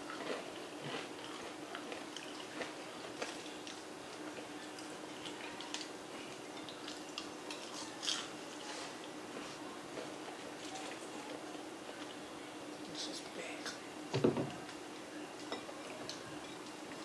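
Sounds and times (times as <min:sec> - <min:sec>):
people chewing: 0:00.0 - 0:12.3
faint steady hum: 0:00.0 - 0:17.0.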